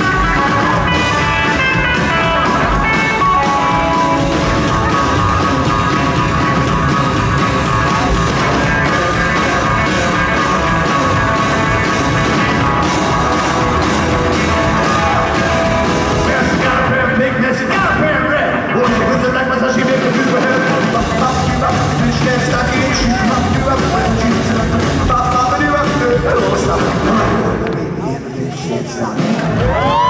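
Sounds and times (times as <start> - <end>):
electric guitar: 0.0 - 27.9
rockabilly band playing: 0.0 - 28.0, 29.2 - 30.0
drums: 0.0 - 30.0.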